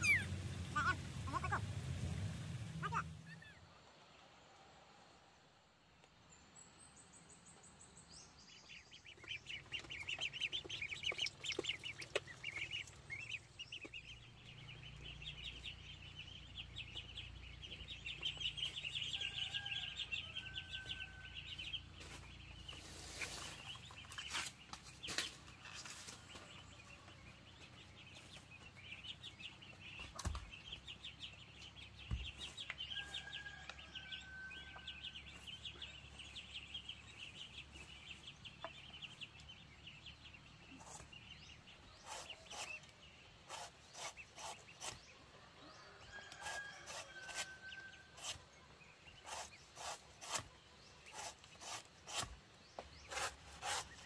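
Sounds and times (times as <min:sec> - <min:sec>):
bird chattering trill: 0:00.0 - 0:01.6.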